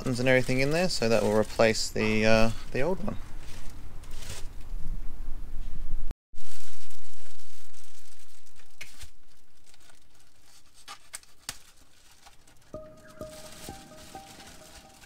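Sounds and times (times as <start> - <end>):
plastic bag crinkling and tearing: 0.0 - 4.7, 6.4 - 15.0
music with a steady tone: 12.7 - 15.0.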